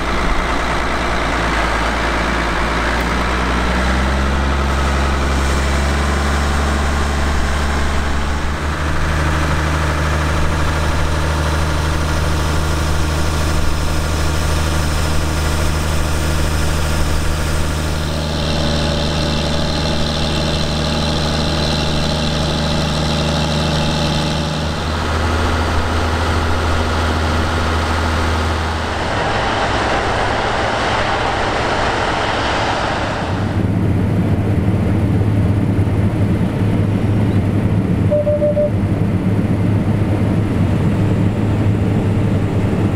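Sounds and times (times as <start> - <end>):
tractor diesel engine running: 0.0 - 42.9
rushing noise: 24.8 - 34.9.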